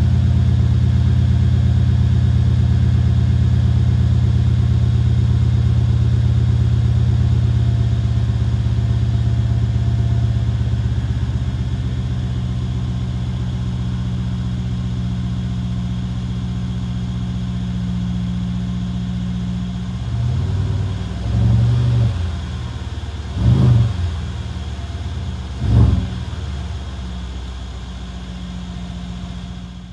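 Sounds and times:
car engine idling deep: 0.0 - 29.9
engine revving: 20.1 - 24.6, 25.4 - 26.6.

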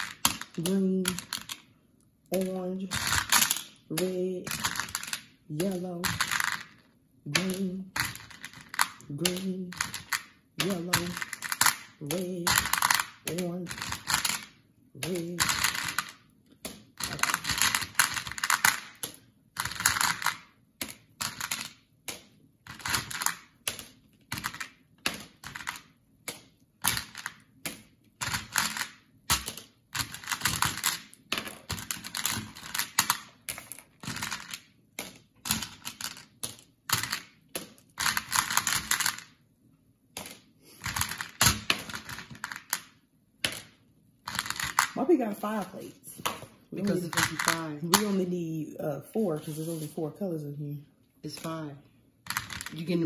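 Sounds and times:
candies rattling in plastic bowl: 2.3 - 16.2, 17.0 - 20.5, 28.2 - 39.4, 40.3 - 42.9, 44.2 - 45.7, 46.8 - 48.2, 52.3 - 53.0.

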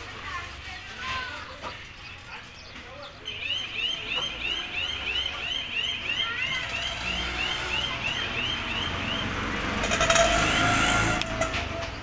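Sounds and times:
bird chirping: 0.5 - 9.8.

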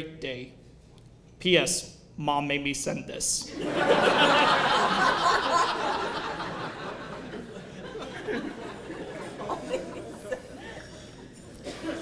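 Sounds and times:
audience laughing: 3.5 - 12.0.

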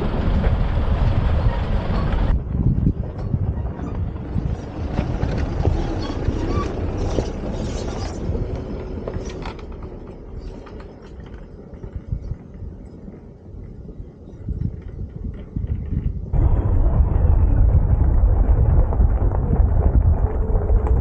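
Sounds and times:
vehicle engine running: 0.0 - 11.4, 16.4 - 21.0.

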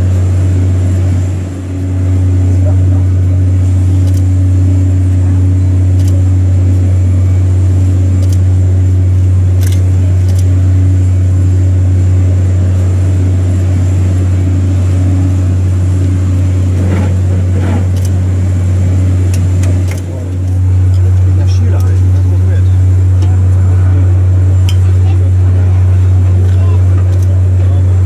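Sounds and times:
low machinery hum: 0.0 - 28.0
faint voices: 20.0 - 28.0.

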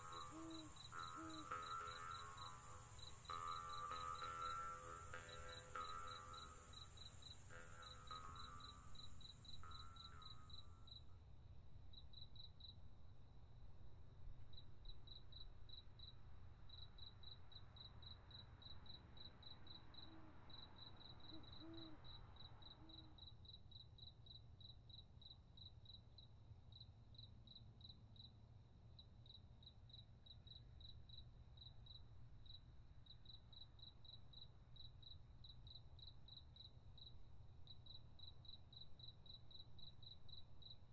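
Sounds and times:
cricket chirping: 0.0 - 11.2, 11.9 - 40.9.

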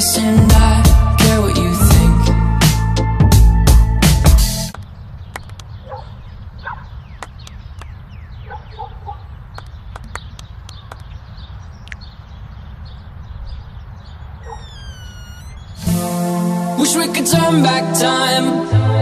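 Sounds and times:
sharp clicks: 4.7 - 5.8, 7.2 - 8.0, 9.5 - 11.2
birds chirping: 4.7 - 17.1
wind rumbling on microphone: 4.8 - 15.9.

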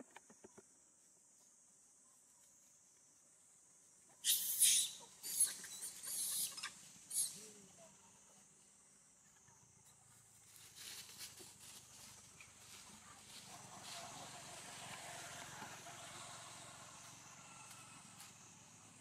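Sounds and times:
high-pitched insect drone: 14.5 - 19.0.

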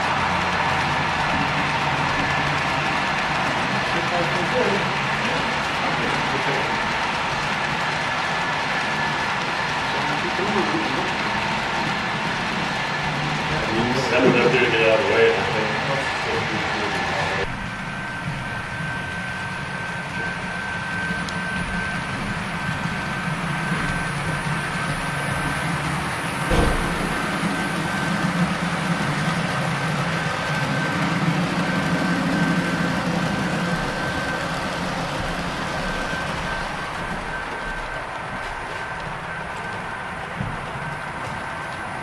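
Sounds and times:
constant high whine: 0.0 - 42.0
model train rumbling: 0.0 - 42.0
sharp knock: 26.5 - 27.2.

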